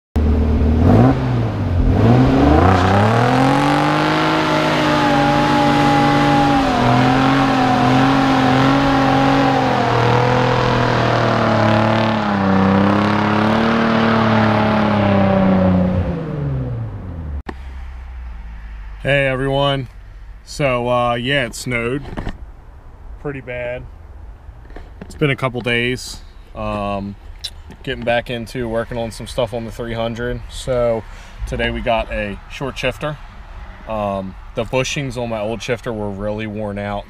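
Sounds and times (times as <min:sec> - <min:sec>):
car engine revving: 0:00.2 - 0:19.6.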